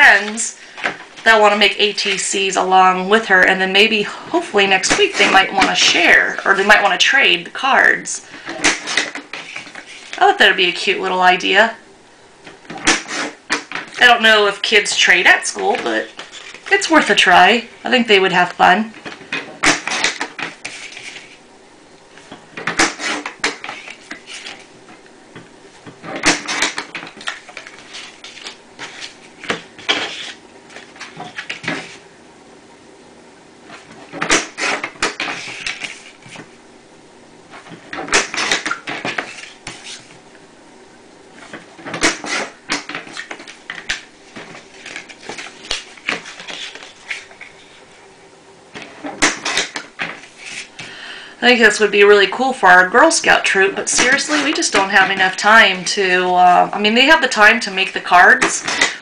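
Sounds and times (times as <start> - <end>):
paper rustling: 8.4 - 10.2, 15.7 - 16.8, 19.0 - 21.4, 22.1 - 25.0, 25.7 - 32.0, 33.7 - 36.6, 37.5 - 40.2, 41.4 - 47.9, 48.8 - 51.0, 53.9 - 55.4
paper trimmer blade scraping: 12.8 - 13.4.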